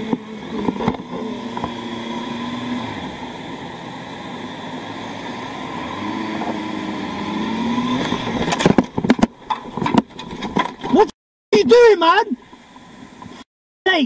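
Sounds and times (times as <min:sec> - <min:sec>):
motorcycle engine running: 0:00.0 - 0:10.5.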